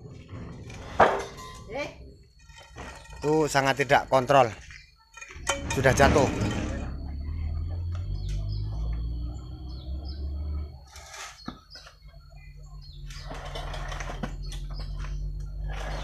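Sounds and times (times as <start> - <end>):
knocks and scraping of heavy block: 0.0 - 1.6, 2.4 - 3.6
low hum: 0.0 - 10.9
small birds chirping: 1.6 - 16.0.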